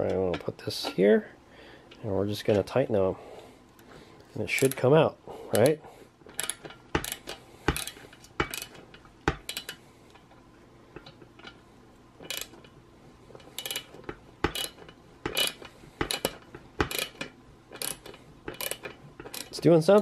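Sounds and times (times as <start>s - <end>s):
socket ratchet clicking: 5.6s - 8.8s, 9.4s - 9.8s, 12.2s - 12.6s, 13.6s - 19.6s.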